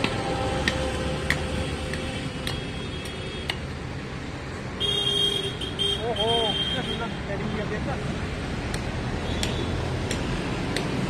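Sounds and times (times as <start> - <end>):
light sharp ticks: 0.0 - 3.7, 8.6 - 11.0.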